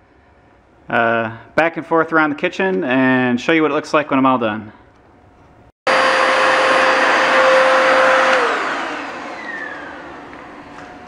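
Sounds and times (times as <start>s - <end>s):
vacuum cleaner whining: 5.9s - 11.0s.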